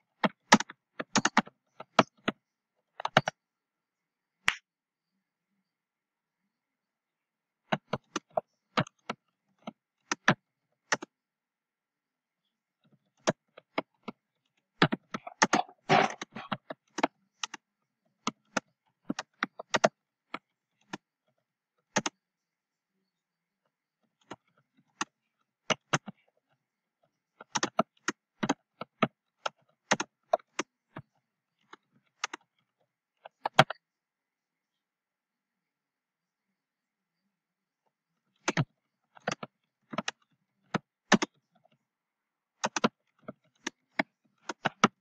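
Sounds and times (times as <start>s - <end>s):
computer keyboard typing: 0.2s - 2.4s, 3.0s - 3.4s, 7.7s - 11.1s, 14.8s - 17.6s, 18.2s - 21.1s, 21.9s - 22.2s, 27.4s - 31.1s, 33.3s - 33.8s, 38.4s - 41.4s, 42.6s - 45.0s.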